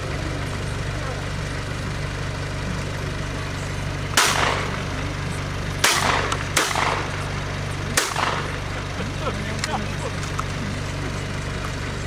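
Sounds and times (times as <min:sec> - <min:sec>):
steady low hum: 0:00.0 - 0:12.0
shotgun shots echoing: 0:04.1 - 0:04.9, 0:05.8 - 0:08.8.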